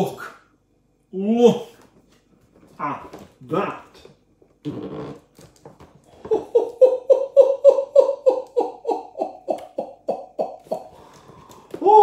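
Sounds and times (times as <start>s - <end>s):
man laughing excitedly: 6.2s - 11.0s.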